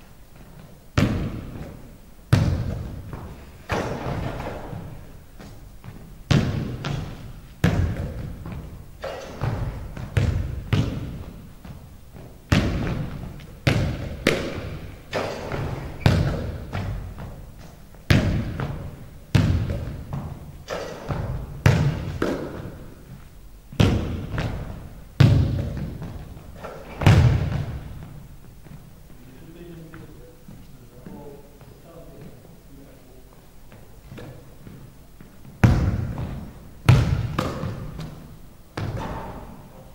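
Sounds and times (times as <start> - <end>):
basketball thudding on hardwood floor: 9.4 - 11.8, 18.1 - 22.7, 26.9 - 28.2, 35.6 - 38.2.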